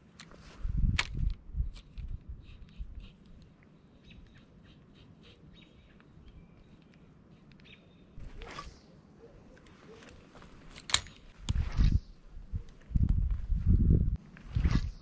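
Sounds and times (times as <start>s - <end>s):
faint bird chirps: 2.5s - 10.2s
fishing rod swish: 8.2s - 8.9s.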